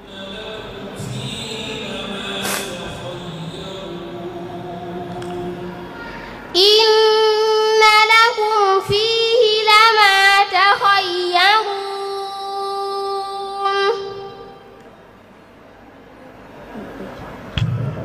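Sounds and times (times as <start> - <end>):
girl chanting melodically: 5.9 - 14.6.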